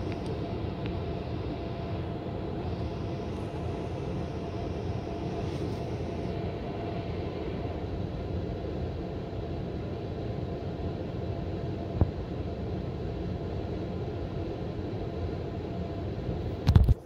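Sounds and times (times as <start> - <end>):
air conditioner humming: 0.0 - 16.6
click: 0.1 - 1.0.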